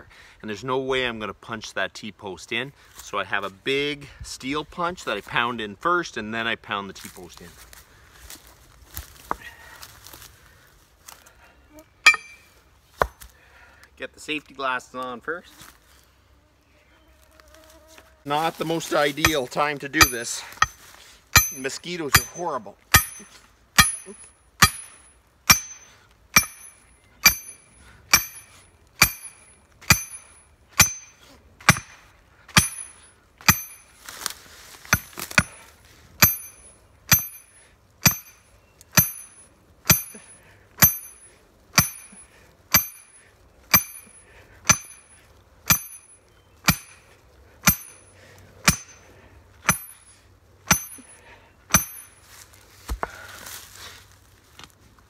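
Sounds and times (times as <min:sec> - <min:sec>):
sledgehammer clanging on steel punch: 0:12.0 - 0:12.5, 0:19.2 - 0:33.9, 0:34.9 - 0:52.2.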